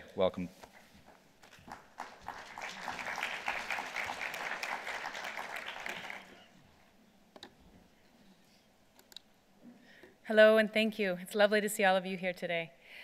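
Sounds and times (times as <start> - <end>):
audience applauding: 1.4 - 6.6.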